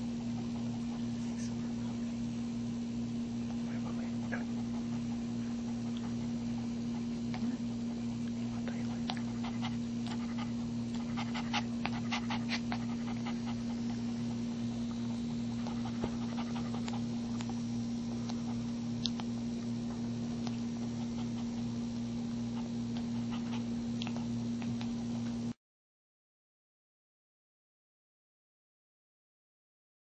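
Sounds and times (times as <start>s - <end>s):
dog panting: 0.0s - 1.8s, 3.6s - 19.3s, 20.0s - 25.3s
steady low hum: 0.0s - 25.6s.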